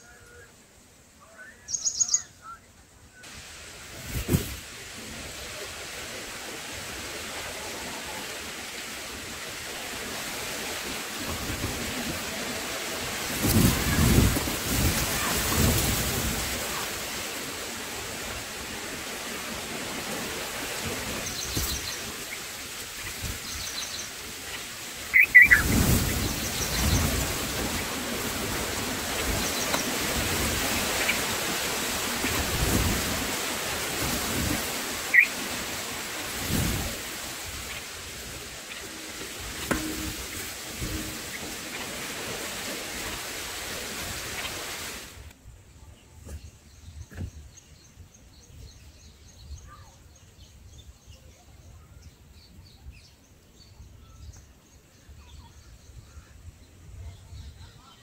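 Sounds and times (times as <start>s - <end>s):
outdoor hiss: 0.0s - 51.1s
high bird chirps: 1.6s - 2.4s, 25.1s - 27.1s, 35.1s - 35.3s
low rumbling gusts: 3.3s - 45.1s.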